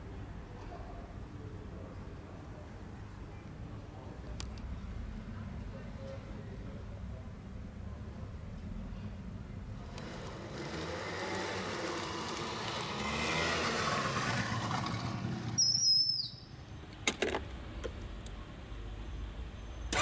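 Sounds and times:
vehicle noise: 0:04.2 - 0:20.0.

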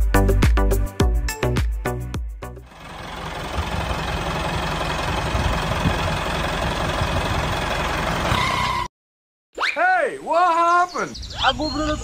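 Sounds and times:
tractor engine rumbling: 0:02.6 - 0:08.9.

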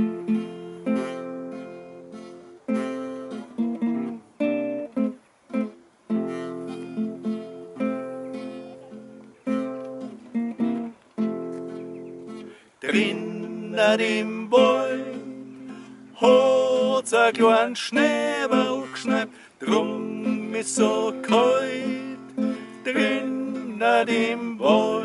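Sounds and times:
acoustic guitars strumming: 0:00.0 - 0:25.0.

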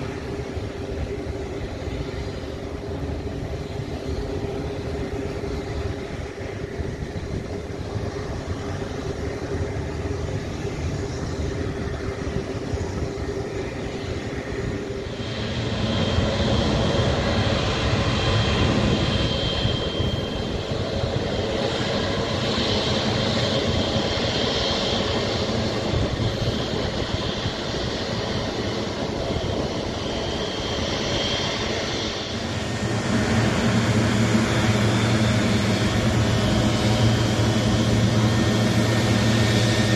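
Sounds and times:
high turbofan whine: 0:00.0 - 0:39.9
jet engines rumbling: 0:00.0 - 0:39.9.

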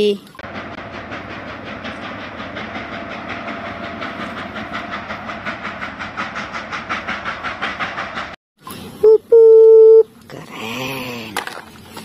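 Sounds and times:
steam locomotive chuffing: 0:00.4 - 0:09.0.

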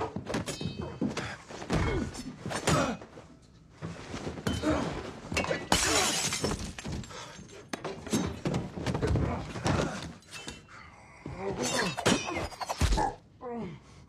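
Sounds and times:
glass breaking crash: 0:05.4 - 0:07.0.

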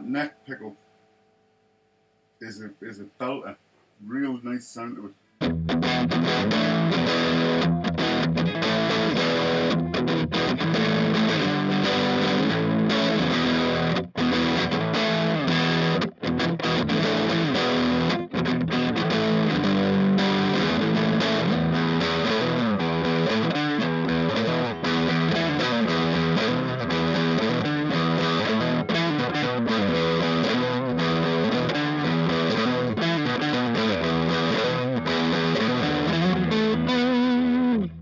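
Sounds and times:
electric guitar playing: 0:05.4 - 0:38.0.

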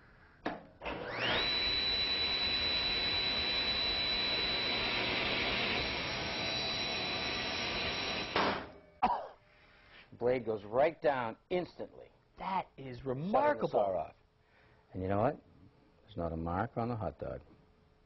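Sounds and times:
table saw whining: 0:00.8 - 0:08.9.

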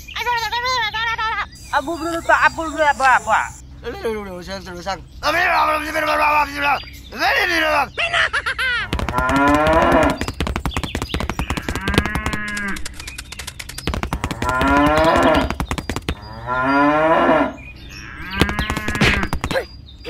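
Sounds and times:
rapid clicking: 0:08.9 - 0:16.2
cow mooing: 0:09.0 - 0:10.2, 0:11.4 - 0:12.8, 0:14.2 - 0:15.6, 0:16.2 - 0:19.3.

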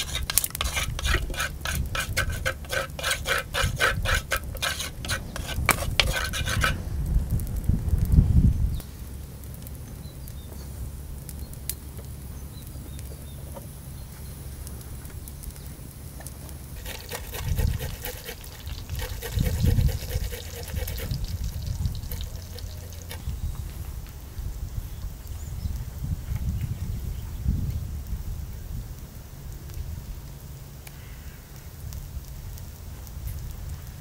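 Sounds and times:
eggplant sizzling in hot oil: 0:00.0 - 0:07.4, 0:14.8 - 0:23.8
steady low rumble: 0:04.5 - 0:13.1, 0:18.6 - 0:30.2.

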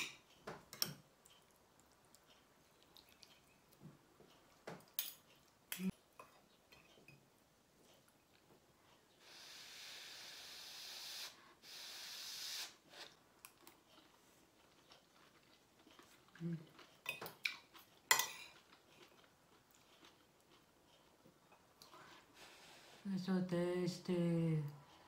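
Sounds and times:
cutlery clinking on a plate: 0:18.1 - 0:18.6.

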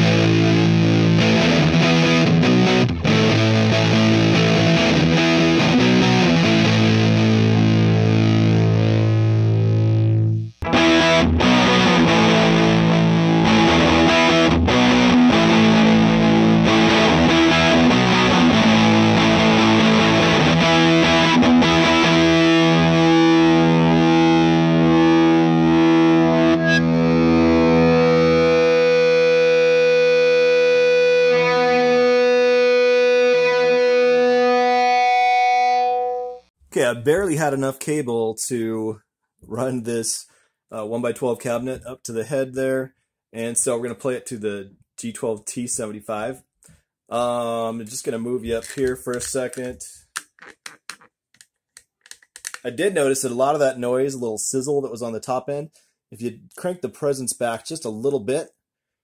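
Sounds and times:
distorted electric guitar chords: 0:00.0 - 0:36.5.

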